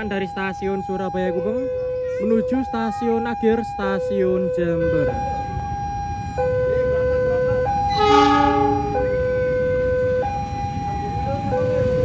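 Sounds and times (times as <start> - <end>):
two-tone crossing alarm: 0.0 - 12.0
train horn blast: 7.9 - 9.2.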